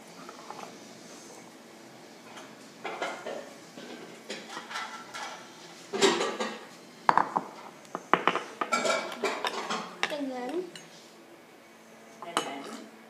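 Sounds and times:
spoon scraping bowl: 0.2 - 0.8.

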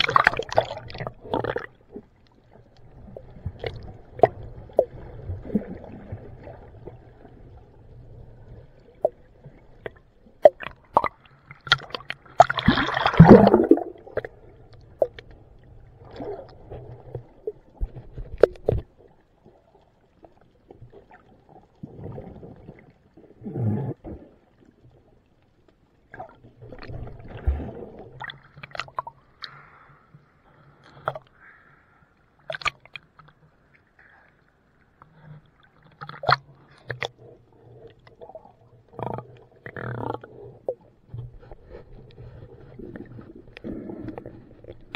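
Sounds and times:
muffled underwater sloshing: 0.0 - 44.9.

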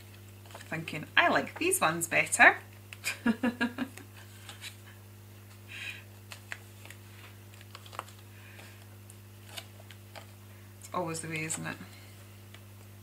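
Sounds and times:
low electrical hum: 0.0 - 13.0
paper and card rustling: 0.1 - 2.3, 4.2 - 10.4, 11.0 - 12.9.

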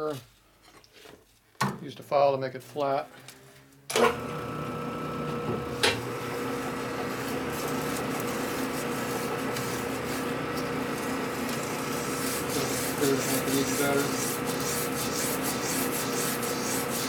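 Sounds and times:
lathe motor whine: 3.9 - 17.0
file scraping spinning steel: 5.8 - 17.0.

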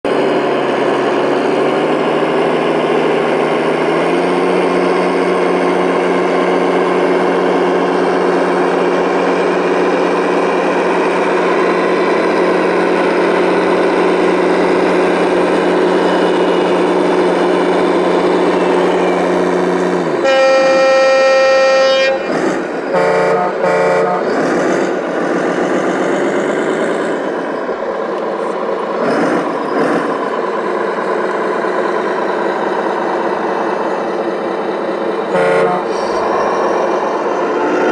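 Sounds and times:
short horn toots: 20.2 - 24.3, 35.3 - 36.2
truck horn blast: 20.2 - 24.5, 35.3 - 36.3.

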